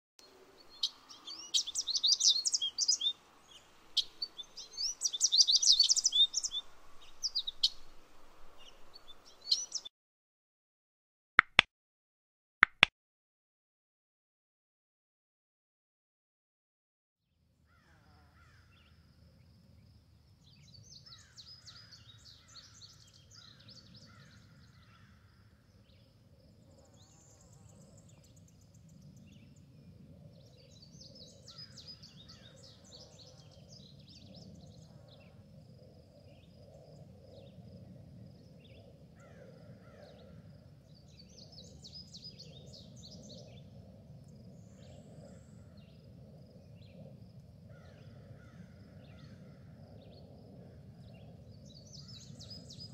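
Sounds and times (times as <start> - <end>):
birds chirping trills: 0.4 - 9.9.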